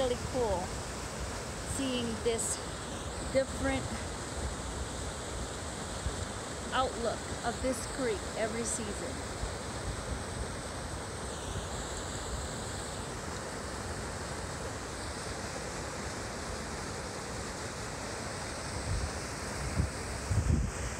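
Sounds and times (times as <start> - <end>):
wind buffeting microphone: 18.8 - 20.9.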